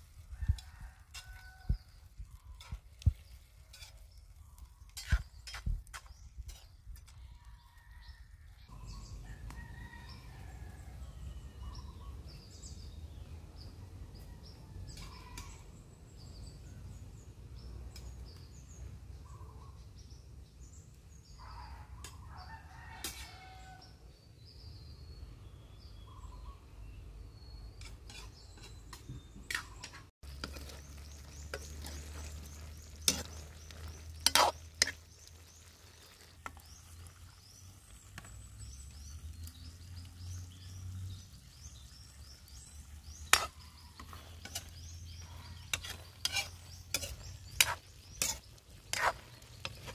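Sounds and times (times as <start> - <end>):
rooster crowing: 7.3 - 11.6, 22.3 - 24.0
bird chirps: 24.6 - 30.0.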